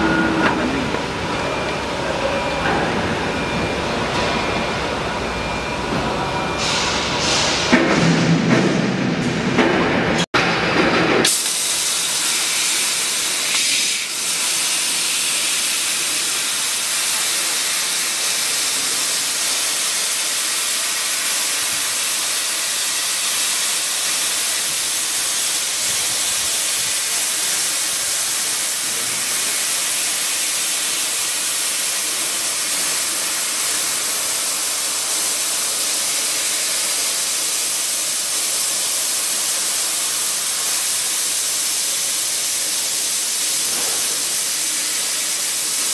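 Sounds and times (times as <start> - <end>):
laser cutter gas jet hissing: 11.2 - 45.9.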